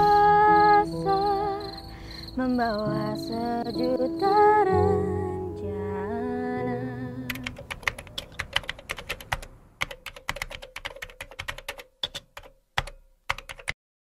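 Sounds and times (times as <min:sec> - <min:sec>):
laptop keyboard typing: 0:07.3 - 0:13.8.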